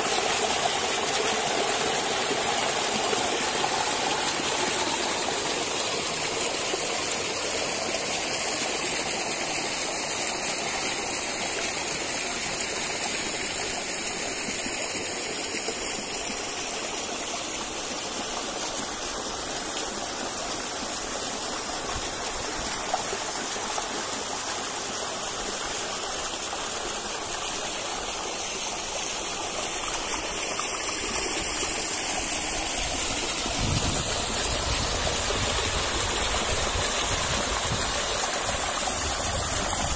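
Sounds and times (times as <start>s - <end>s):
waterfall rushing: 0.0s - 12.1s, 26.3s - 39.9s.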